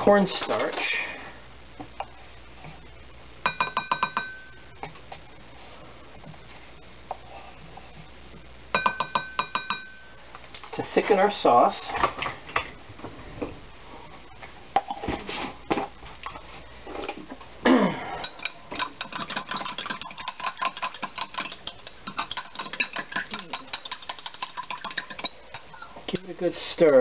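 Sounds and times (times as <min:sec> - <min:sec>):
utensil stirring in glass cup: 0:18.3 - 0:27.0.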